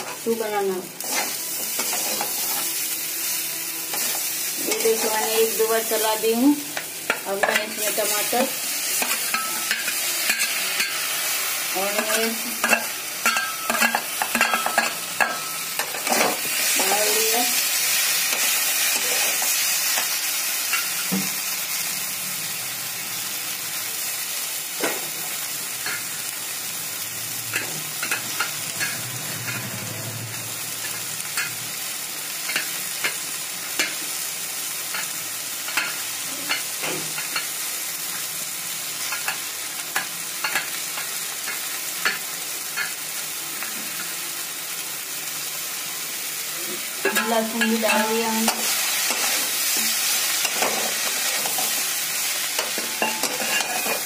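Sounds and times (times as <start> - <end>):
vegetables sizzling in oil: 0.0 - 54.0
metal spatula scraping pan: 1.0 - 2.7, 27.5 - 30.2, 52.6 - 54.0.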